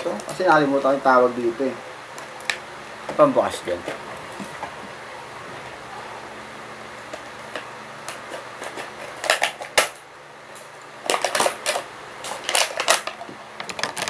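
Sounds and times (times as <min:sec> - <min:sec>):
plastic packaging crackling: 0:07.0 - 0:14.0.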